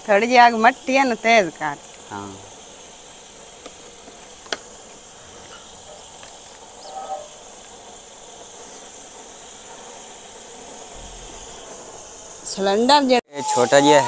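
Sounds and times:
gas burner hissing: 0:00.0 - 0:14.0
faint chirp: 0:05.1 - 0:07.5.

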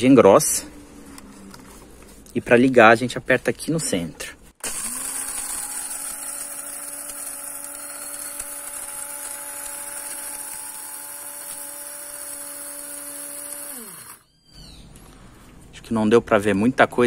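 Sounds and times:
coffee grinder running: 0:04.6 - 0:14.3.

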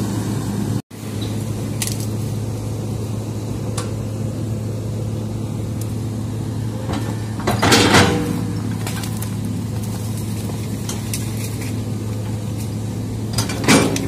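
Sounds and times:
excavator diesel engine running: 0:00.0 - 0:14.0
brush cracking: 0:01.7 - 0:02.4, 0:08.2 - 0:13.3
bucket crunching into branches: 0:08.1 - 0:12.8.

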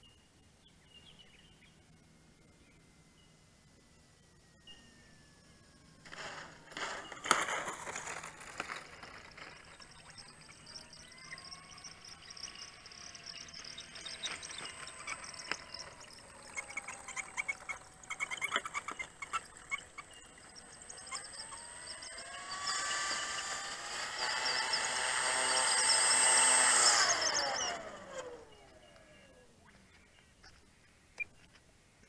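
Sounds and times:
model plane motor whining: 0:04.3 - 0:29.8.

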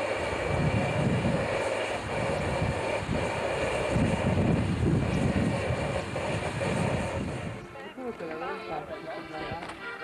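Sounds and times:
steam hissing: 0:00.0 - 0:07.8.

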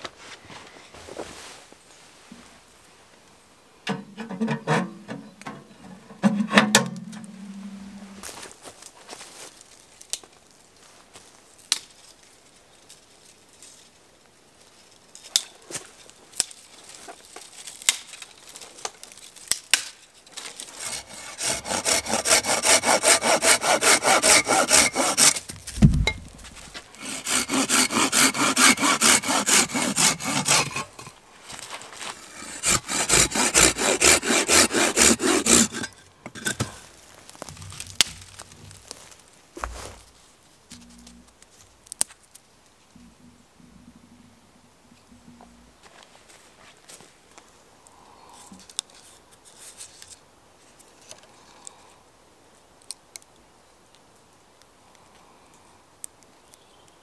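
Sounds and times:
hand saw cutting wood: 0:20.5 - 0:25.6, 0:26.8 - 0:31.2, 0:32.0 - 0:36.8
thump: 0:25.7 - 0:26.3.

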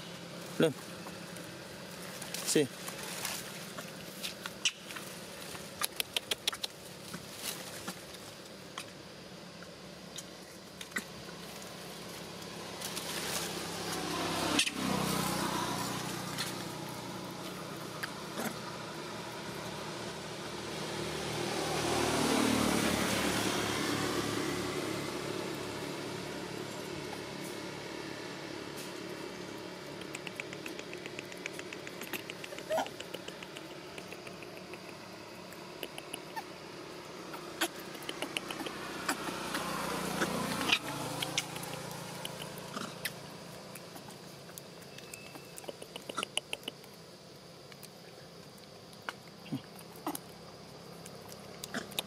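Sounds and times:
vehicle engine passing by: 0:06.8 - 0:46.7
sharp clicks and taps: 0:29.9 - 0:36.4, 0:37.8 - 0:38.8, 0:44.6 - 0:46.9.

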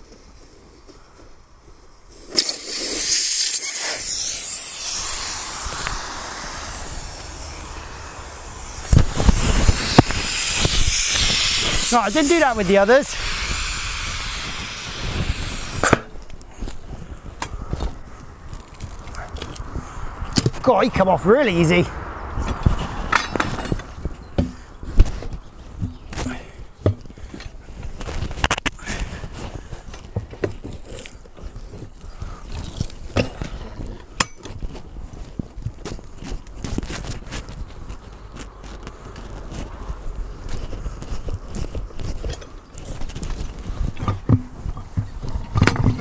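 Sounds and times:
air hissing out of tyre valve: 0:02.1 - 0:16.2
tyre clunking against steel frame: 0:23.1 - 0:27.6.

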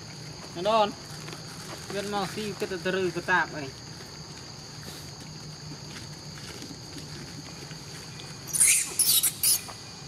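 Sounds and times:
insect chorus drone: 0:00.0 - 0:10.0.

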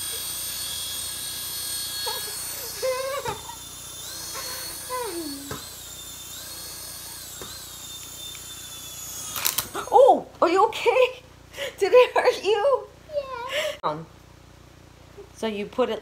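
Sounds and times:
toy helicopter motor whining: 0:00.0 - 0:10.2.

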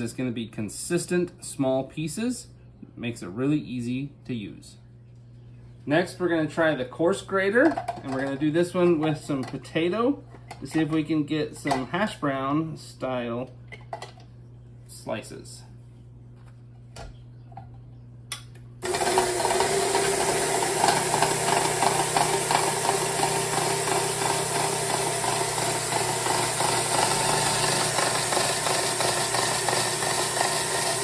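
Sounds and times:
stand mixer motor running: 0:18.8 - 0:31.0.

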